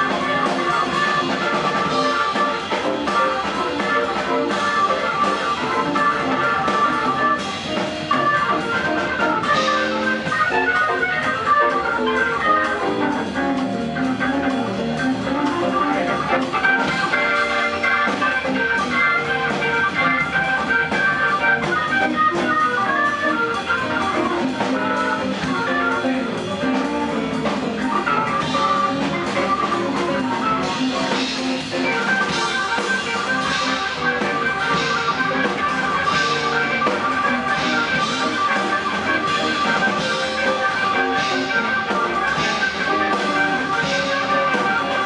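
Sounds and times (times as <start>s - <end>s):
drum kit: 0.0s - 45.0s
electric guitar: 0.0s - 45.0s
organ: 0.0s - 45.0s.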